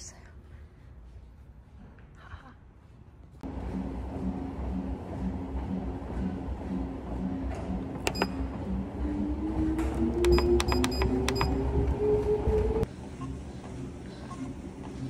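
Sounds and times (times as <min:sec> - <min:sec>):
treadmill motor whine rising: 0:03.4 - 0:15.0
treadmill button beeps: 0:08.0 - 0:08.6, 0:10.1 - 0:11.7.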